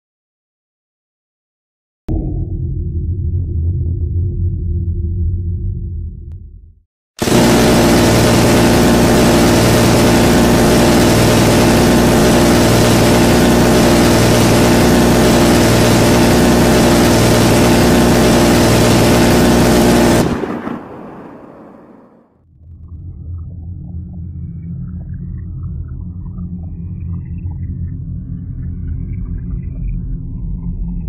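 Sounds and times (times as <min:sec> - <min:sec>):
machine gun firing continuous burst: 0:07.2 - 0:20.6
gunfire echo: 0:07.2 - 0:22.2.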